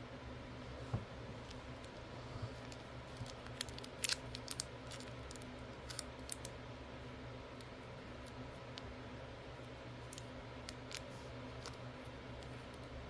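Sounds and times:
steady low hum: 0:00.0 - 0:13.0
plastic toys clicking and crinkling: 0:03.1 - 0:06.5.

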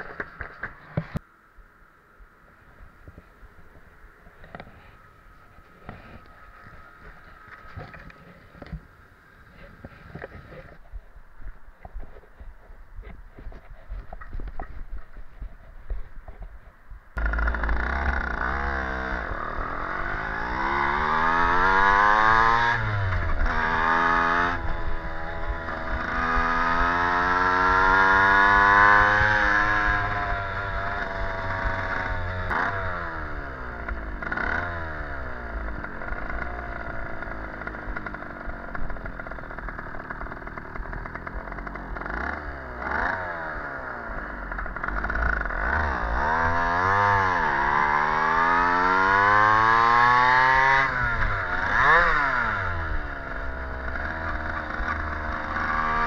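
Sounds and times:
moped engine revving: 0:17.2 - 0:56.0.

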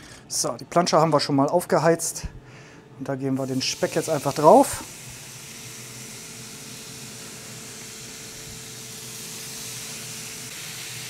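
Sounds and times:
bacon sizzling on a griddle: 0:03.4 - 0:11.0.

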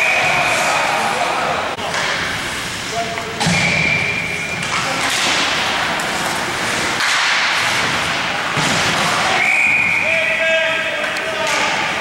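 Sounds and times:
hockey sticks clacking: 0:01.8 - 0:03.7, 0:04.4 - 0:12.0.

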